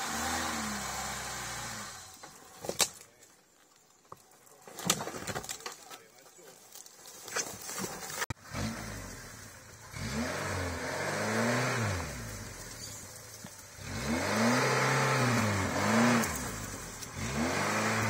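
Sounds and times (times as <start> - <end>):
four-cylinder engine revving: 0.0 - 2.2, 8.3 - 18.0.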